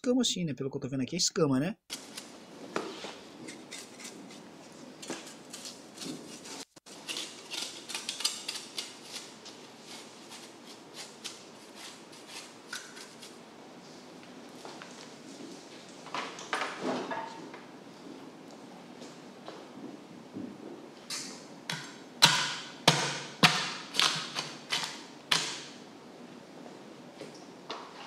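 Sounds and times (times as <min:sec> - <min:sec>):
blade scraping fish scales: 0:03.4 - 0:04.5, 0:05.2 - 0:13.4.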